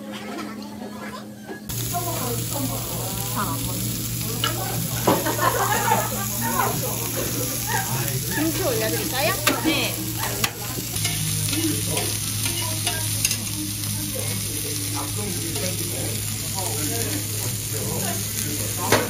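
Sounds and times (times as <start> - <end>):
meat sizzling on a griddle: 1.7 - 19.0
metal tongs clicking on griddle: 4.4 - 5.3, 9.4 - 13.6.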